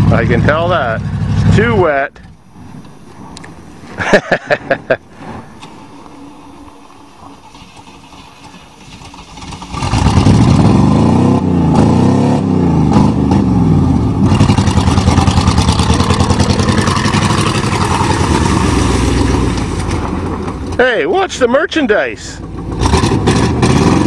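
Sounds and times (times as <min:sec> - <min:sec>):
truck engine revving: 0:07.1 - 0:21.4, 0:22.3 - 0:24.0.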